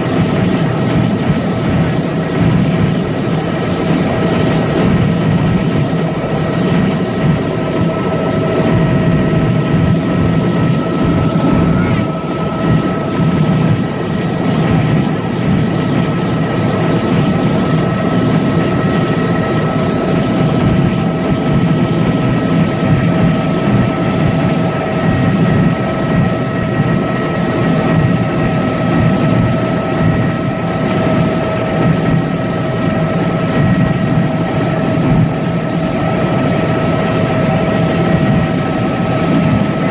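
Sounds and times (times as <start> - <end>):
helicopter rotor and engine drone: 0.0 - 39.9
high whining tones: 7.8 - 15.1.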